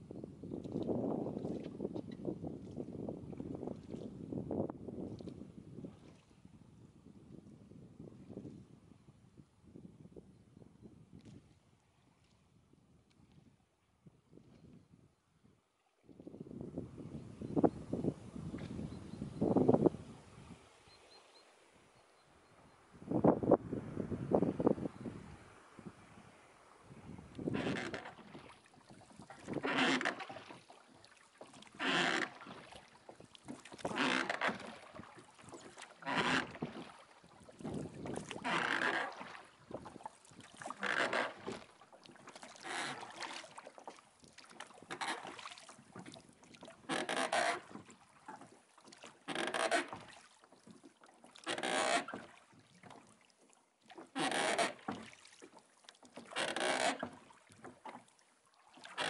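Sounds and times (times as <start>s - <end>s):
oars splashing through water: 0.5s - 4.4s, 5.0s - 6.5s, 24.2s - 59.0s.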